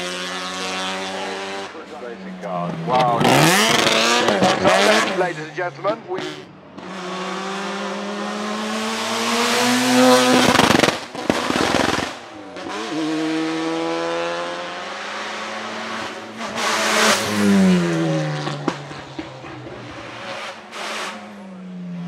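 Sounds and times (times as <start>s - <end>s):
race car engine accelerating: 0.0s - 21.5s
exhaust crackles and pops: 10.3s - 12.3s.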